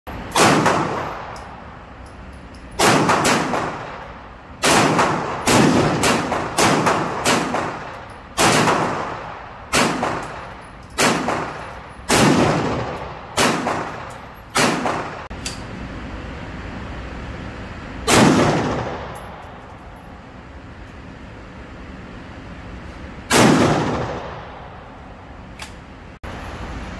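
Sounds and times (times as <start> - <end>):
rifle shots echoing indoors: 0.1 - 1.5, 2.8 - 15.3, 18.0 - 19.7, 23.3 - 24.8.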